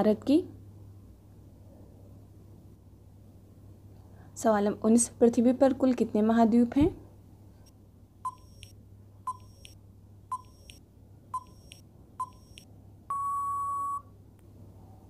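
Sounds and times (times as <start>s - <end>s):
long steady beep: 8.3s - 8.7s, 9.3s - 10.8s, 11.4s - 14.1s
short beeps: 8.3s - 8.7s, 9.3s - 10.8s, 11.4s - 14.1s.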